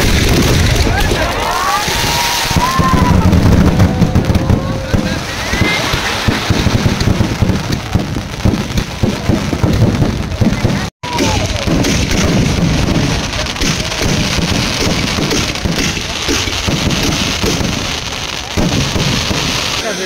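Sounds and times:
firecrackers crackling: 0:00.0 - 0:20.0.

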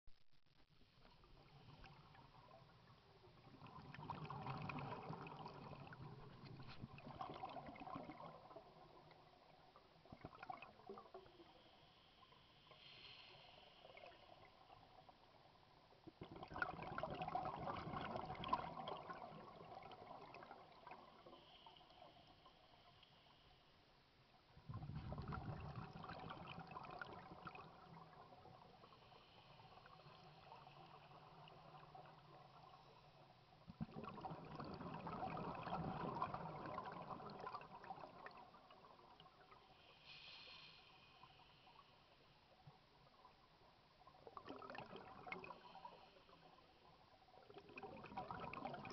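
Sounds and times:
diver exhaling bubbles underwater: 0:03.5 - 0:08.7, 0:16.2 - 0:21.0, 0:24.7 - 0:28.3, 0:33.8 - 0:38.5
faint hiss: 0:10.8 - 0:16.2, 0:20.7 - 0:25.1, 0:26.4 - 0:33.9, 0:37.7 - 0:44.4, 0:45.3 - 0:47.5.

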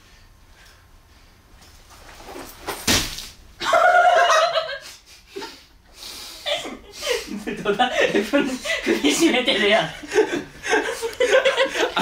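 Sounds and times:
bare feet landing on floor: 0:02.2 - 0:03.4.

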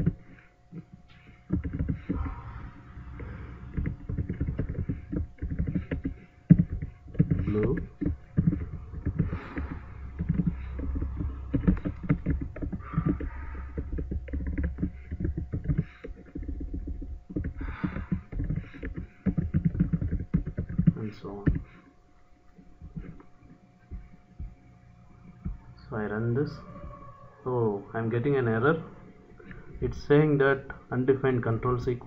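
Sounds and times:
low rumble: 0:01.5 - 0:18.6.

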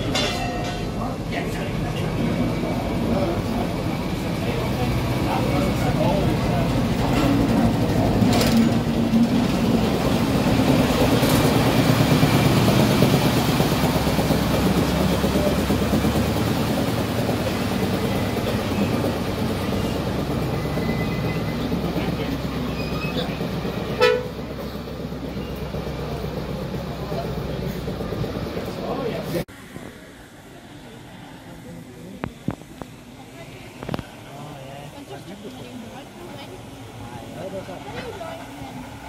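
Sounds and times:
diesel train engines rumbling: 0:00.0 - 0:39.0
train horn toot: 0:23.9 - 0:24.4.

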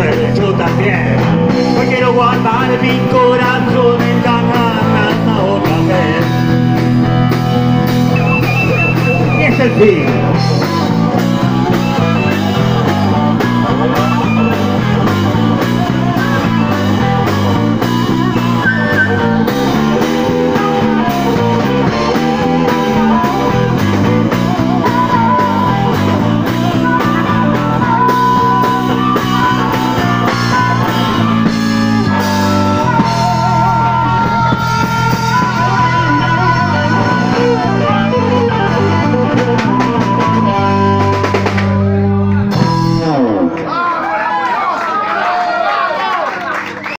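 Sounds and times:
drum kit: 0:00.0 - 0:43.5
bass line: 0:00.0 - 0:43.7
electric guitars: 0:00.0 - 0:43.9
harmonica: 0:07.9 - 0:41.4.

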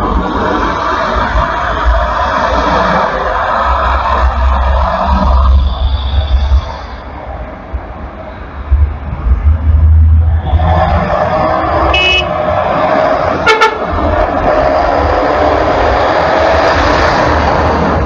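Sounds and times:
highway traffic passing: 0:00.0 - 0:18.0
car horn toot: 0:11.9 - 0:12.4, 0:13.4 - 0:13.9.

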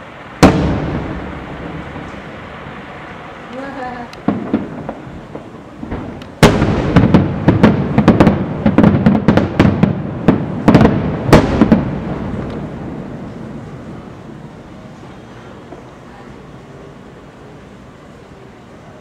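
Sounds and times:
firework shells bursting: 0:00.0 - 0:13.4.

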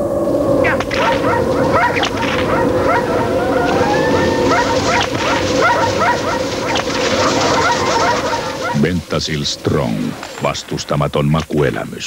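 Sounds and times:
dog whining howl: 0:00.6 - 0:08.8
dogs yipping and barking: 0:00.6 - 0:09.0.

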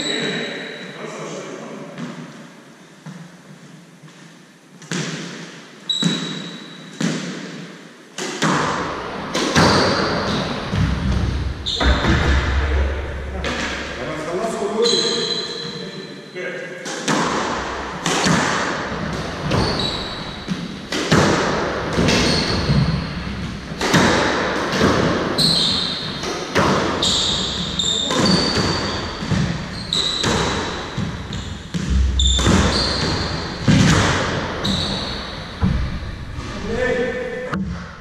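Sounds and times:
squash ball hit by rackets: 0:04.8 - 0:14.0, 0:16.9 - 0:36.0
shoes squeaking on wooden floor: 0:05.9 - 0:07.0, 0:09.6 - 0:12.2, 0:14.8 - 0:16.1, 0:19.0 - 0:21.4, 0:22.0 - 0:24.1, 0:24.8 - 0:35.8.

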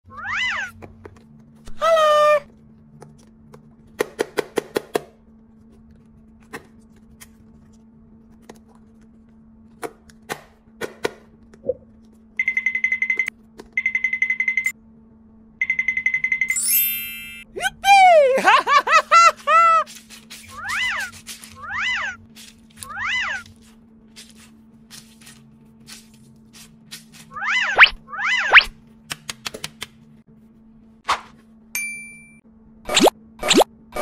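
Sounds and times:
pulsing electronic ringing: 0:15.6 - 0:17.5.

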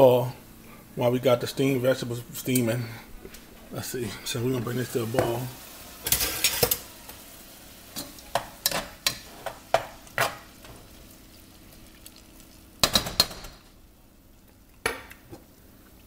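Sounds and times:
faint steady hiss: 0:00.0 - 0:16.0
kitchen clicks and knocks: 0:12.8 - 0:13.7.

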